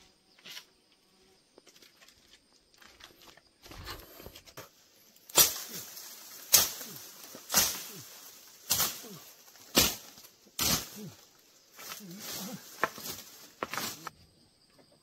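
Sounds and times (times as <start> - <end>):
hand tool chopping wood: 5.3 - 8.0, 8.6 - 11.1, 11.8 - 14.1.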